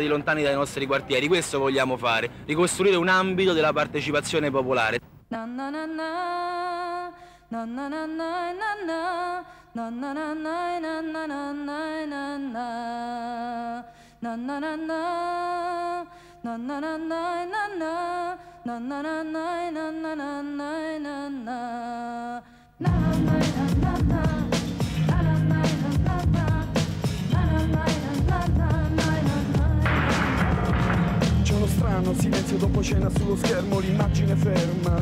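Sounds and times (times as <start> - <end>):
person singing unaccompanied: 16.5 - 35.0.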